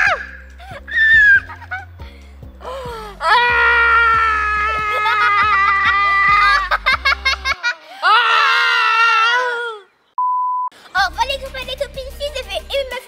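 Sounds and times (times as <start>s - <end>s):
background music with low beat: 0.0s - 7.6s, 11.0s - 13.0s
people shrieking: 3.2s - 9.8s.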